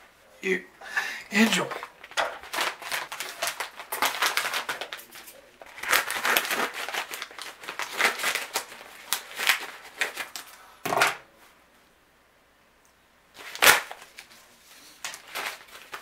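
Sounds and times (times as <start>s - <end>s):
paper mailer crinkling and tearing: 1.4s - 10.6s, 13.4s - 16.0s.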